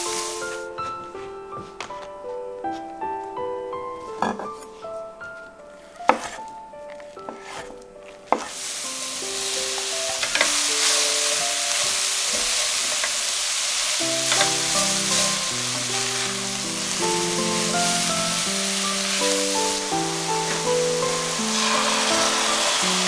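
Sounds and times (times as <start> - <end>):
mushrooms sizzling in pan: 0.0 - 0.7, 8.4 - 23.0
knife on wooden cutting board: 6.1 - 6.4, 7.3 - 8.6
spatula stirring: 7.2 - 7.7, 13.8 - 23.0.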